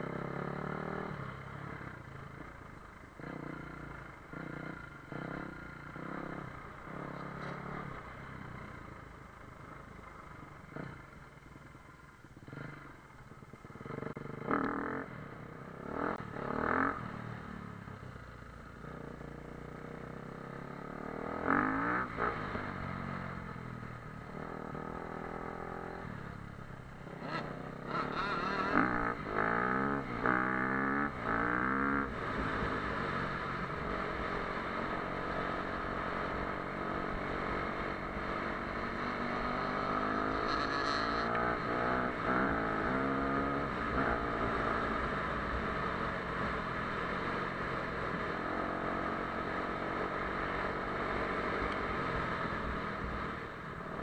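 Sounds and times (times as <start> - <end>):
motocross bike engine revving: 15.8 - 17.0, 20.8 - 23.0, 27.0 - 37.5, 38.2 - 46.1.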